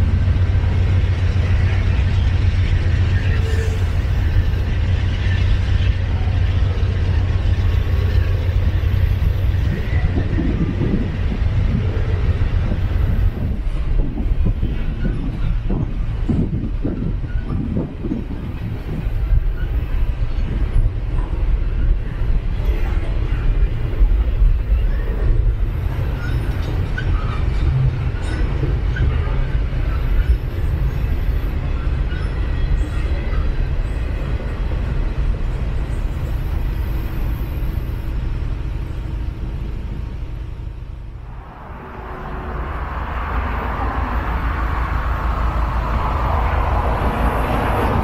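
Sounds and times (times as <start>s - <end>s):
freight train wheels rumbling: 0.0s - 48.0s.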